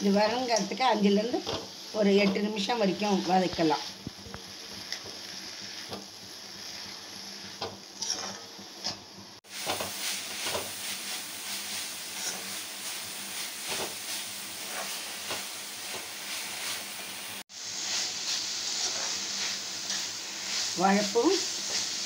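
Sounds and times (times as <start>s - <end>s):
food sizzling in oil: 0.0s - 22.0s
steel spoon scraping a pan: 4.6s - 8.6s, 9.6s - 17.1s, 17.7s - 22.0s.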